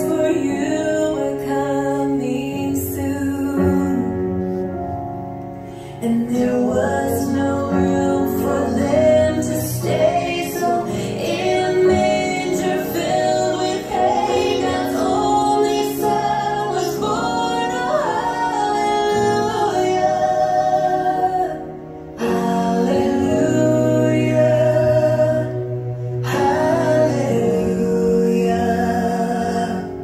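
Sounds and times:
woman singing gospel song: 6.0 - 21.6.

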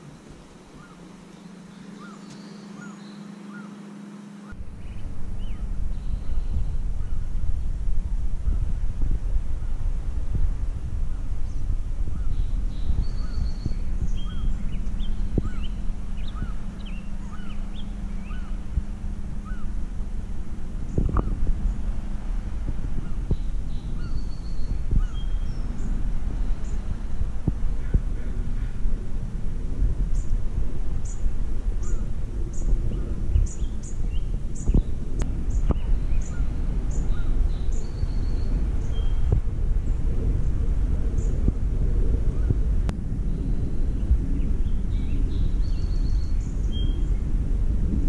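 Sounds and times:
other birds calling: 0.0 - 7.3, 11.1 - 28.9, 31.0 - 39.4
faint low hum: 0.0 - 48.0
wind rumbling on microphone: 0.0 - 48.0
small bird chirping: 0.8 - 3.8.

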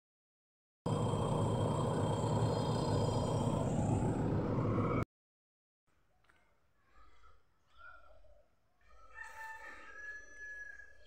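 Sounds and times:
diesel engine running with whine: 0.9 - 5.0.

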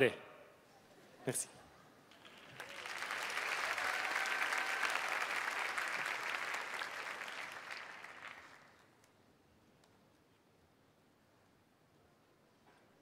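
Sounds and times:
audience applauding: 2.1 - 9.0.

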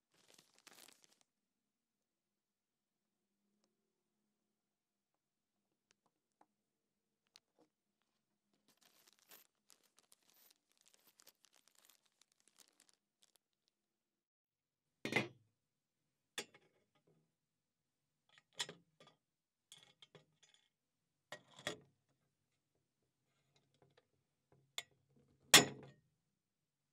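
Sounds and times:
plastic bag crinkling: 0.0 - 1.3, 8.7 - 13.4.

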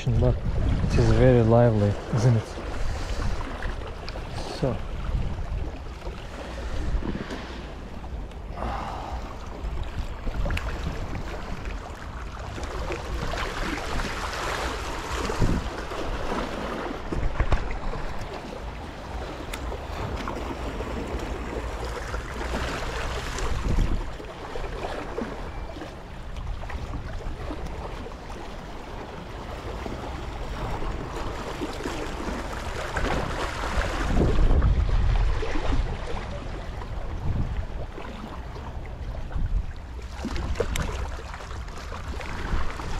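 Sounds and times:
wind buffeting microphone: 0.0 - 11.8, 12.9 - 18.5, 19.9 - 24.3, 30.5 - 41.0
waves splashing against rocks: 0.0 - 25.5, 26.7 - 38.5, 39.4 - 42.9.

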